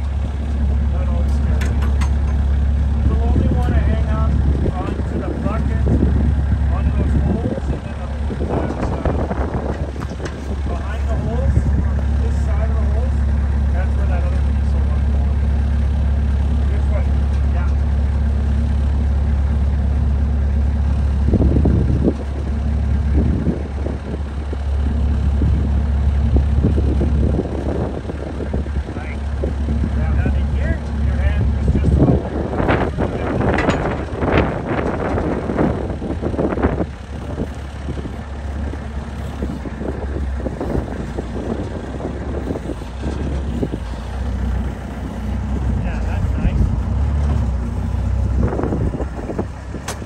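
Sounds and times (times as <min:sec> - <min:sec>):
loader engine idling: 0:00.0 - 0:50.0
knocks and rattles: 0:01.2 - 0:02.6, 0:30.8 - 0:45.8.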